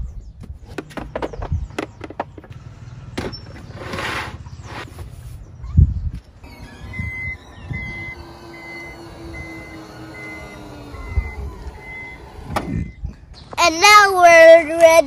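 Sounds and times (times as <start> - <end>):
motor hum: 6.2 - 13.2
warning beeper: 6.4 - 13.0.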